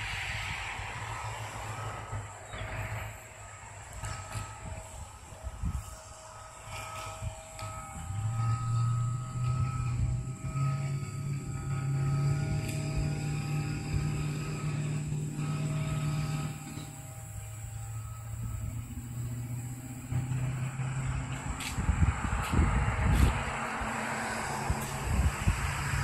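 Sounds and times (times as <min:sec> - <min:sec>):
engine humming: 0:00.0 - 0:26.0.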